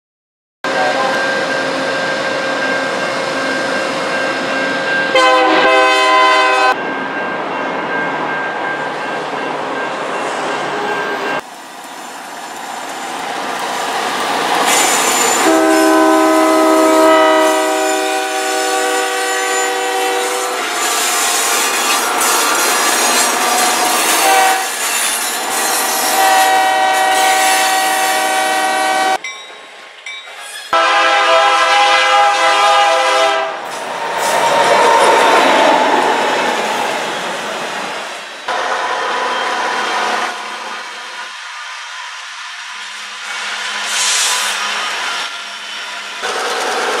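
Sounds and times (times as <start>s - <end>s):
train engines and wheels: 0.6s - 47.0s
locomotive air horn chords: 5.1s - 6.8s, 15.4s - 20.7s, 24.0s - 24.8s, 26.1s - 29.2s, 30.7s - 33.6s.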